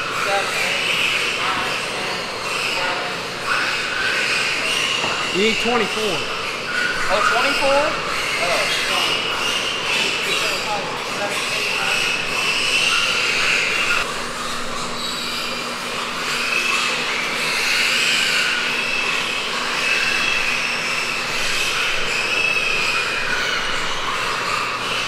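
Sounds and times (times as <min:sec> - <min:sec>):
piglets squealing: 0:00.0 - 0:25.0.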